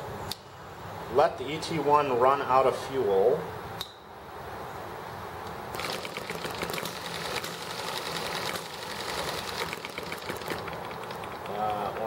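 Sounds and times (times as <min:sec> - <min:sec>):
small engine clattering: 0:05.7 - 0:12.0.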